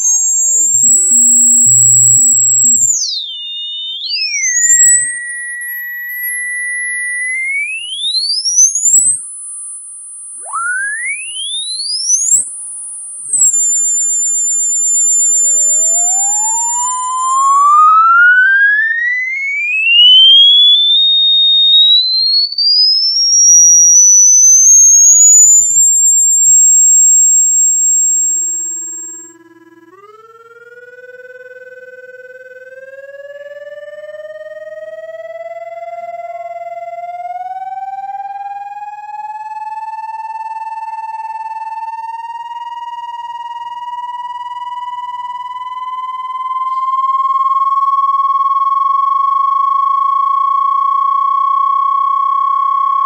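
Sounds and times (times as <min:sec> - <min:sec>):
high whistles: 0:00.0 - 0:29.4
electronic tones gliding in pitch: 0:00.0 - 0:30.3
slow rising whine: 0:00.0 - 0:32.8.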